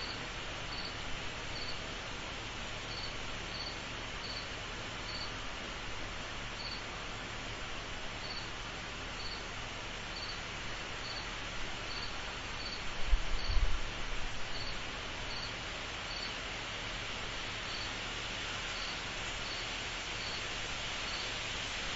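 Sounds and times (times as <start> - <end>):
cricket chirping: 0.0 - 1.0, 1.6 - 1.8, 2.9 - 4.5, 5.1 - 5.3, 6.6 - 6.8, 8.2 - 8.5, 9.2 - 9.4, 10.1 - 10.4, 11.0 - 11.3, 11.9 - 12.8, 13.4 - 13.6, 14.5 - 16.4, 17.7 - 17.9, 18.8 - 20.4, 21.1 - 21.3
night insect chorus drone: 0.0 - 7.0, 7.6 - 13.6, 14.2 - 21.9.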